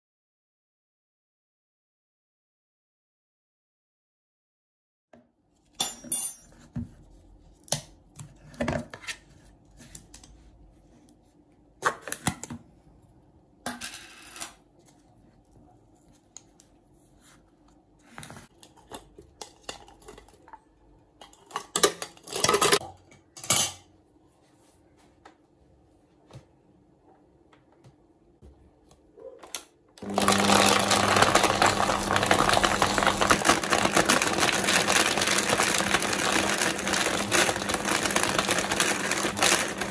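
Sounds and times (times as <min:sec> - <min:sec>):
blender crushing frozen fruit: 0:30.0 - 0:39.9.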